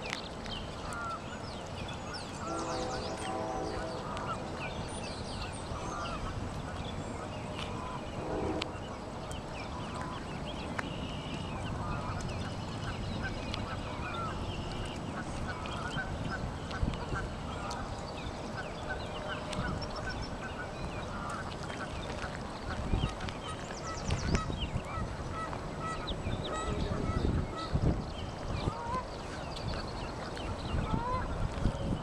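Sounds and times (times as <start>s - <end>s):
wind rumble on microphone: 0.0s - 32.0s
waterfowl honking: 2.1s - 4.8s, 5.4s - 10.3s, 11.7s - 14.5s, 24.3s - 27.8s, 28.6s - 29.1s, 30.2s - 31.4s.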